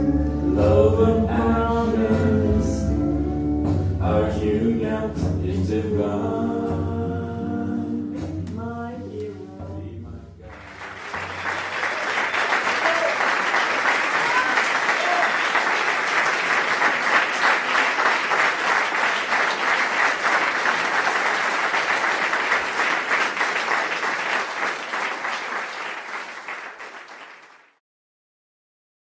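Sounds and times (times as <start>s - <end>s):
audience applauding: 10.5s - 27.8s.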